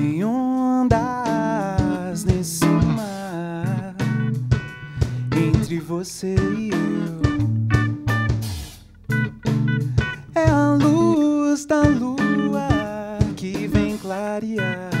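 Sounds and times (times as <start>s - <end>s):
drums: 0.0s - 15.0s
electric bass: 1.0s - 15.0s
gliding lead melody: 6.4s - 11.0s.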